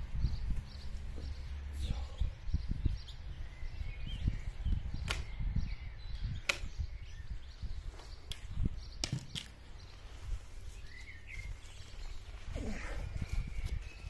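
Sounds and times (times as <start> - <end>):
wind rumble on microphone: 0.0 - 14.0
sharp clicks: 5.0 - 5.3, 6.4 - 6.8.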